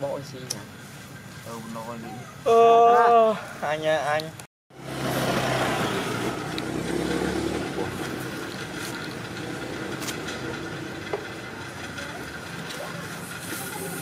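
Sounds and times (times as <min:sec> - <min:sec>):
motor engine humming: 0:04.8 - 0:14.0
outdoor hiss: 0:12.5 - 0:14.0.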